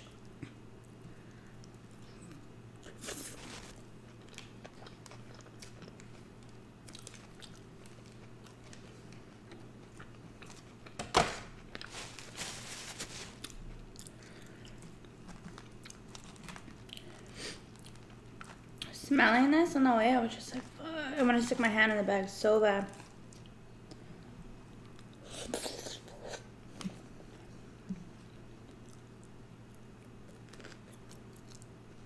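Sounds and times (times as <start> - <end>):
person chewing food: 0.0 - 11.0, 13.2 - 18.9, 24.8 - 31.7
rustling: 3.0 - 3.8, 11.7 - 13.5.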